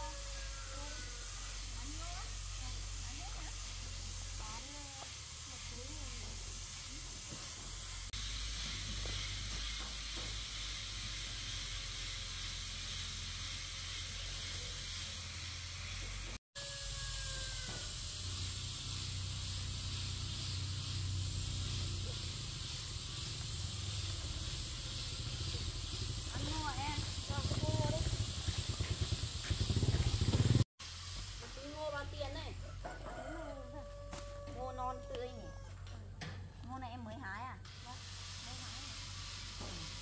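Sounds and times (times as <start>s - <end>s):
steady hiss: 17.8s - 32.5s, 37.7s - 40.0s.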